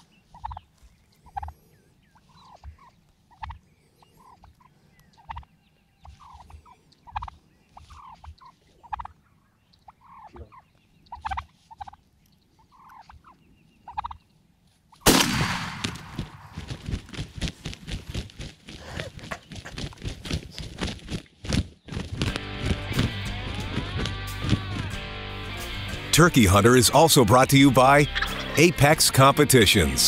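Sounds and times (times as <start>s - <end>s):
turkeys gobbling: 0.0s - 0.6s, 1.2s - 1.6s, 2.2s - 14.4s, 26.5s - 30.0s
wing flapping: 15.8s - 25.0s.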